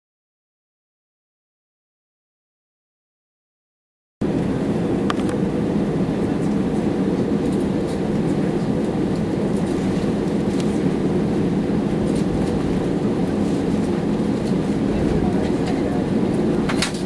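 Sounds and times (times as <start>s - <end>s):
jet engines rumbling: 4.2s - 17.0s
wheels rolling on taxiway: 4.2s - 17.0s.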